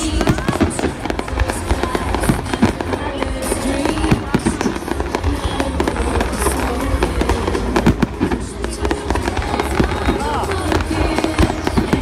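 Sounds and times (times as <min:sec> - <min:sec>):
fireworks bangs and crackles: 0:00.0 - 0:12.0
music: 0:00.0 - 0:12.0.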